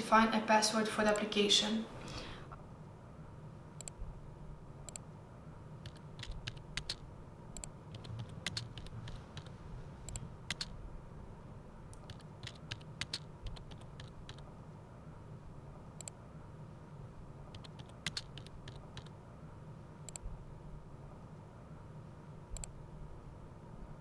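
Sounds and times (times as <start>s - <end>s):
faint low hum: 0.0s - 24.0s
computer keyboard typing: 5.8s - 10.8s, 11.9s - 14.5s, 17.5s - 19.2s.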